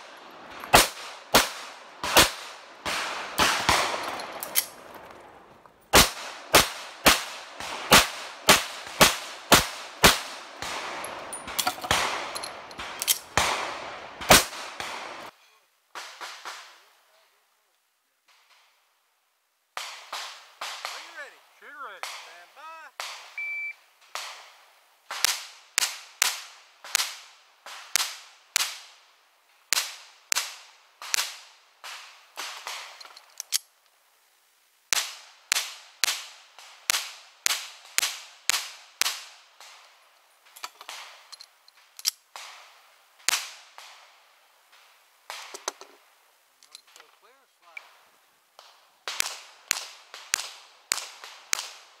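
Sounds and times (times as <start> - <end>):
pistol shots: 0.5 - 4.8, 5.9 - 15.3.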